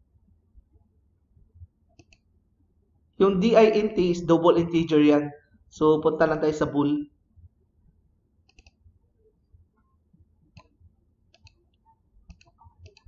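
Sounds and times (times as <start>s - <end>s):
mouse and keyboard clicks: 2.0s - 2.3s, 8.4s - 8.8s, 10.5s - 13.0s.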